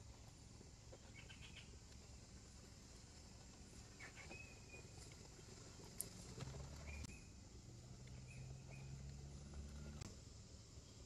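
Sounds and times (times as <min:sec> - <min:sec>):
low steady hum: 0:00.0 - 0:11.0
faint bird chirps: 0:00.1 - 0:02.2, 0:03.8 - 0:10.0.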